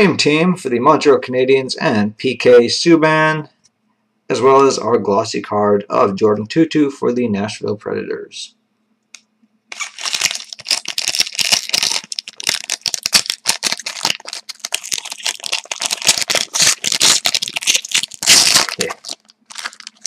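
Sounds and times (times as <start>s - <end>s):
cards rustling: 9.7s - 20.0s
foil wrapper crinkling and tearing: 9.7s - 20.0s.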